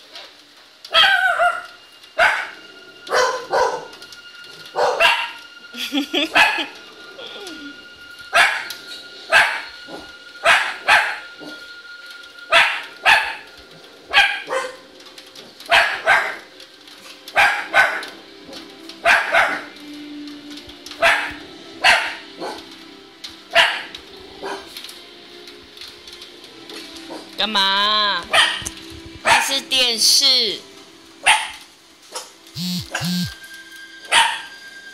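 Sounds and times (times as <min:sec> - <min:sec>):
faint film soundtrack: 0:00.0 - 0:34.9
dog barking: 0:00.9 - 0:03.9, 0:04.8 - 0:05.4, 0:06.3 - 0:06.7, 0:08.3 - 0:08.7, 0:09.3 - 0:11.6, 0:12.5 - 0:13.5, 0:14.1 - 0:14.8, 0:15.7 - 0:16.5, 0:17.3 - 0:18.2, 0:19.0 - 0:19.7, 0:21.0 - 0:22.7, 0:23.5 - 0:24.8, 0:28.3 - 0:29.5, 0:31.2 - 0:33.3, 0:34.1 - 0:34.5.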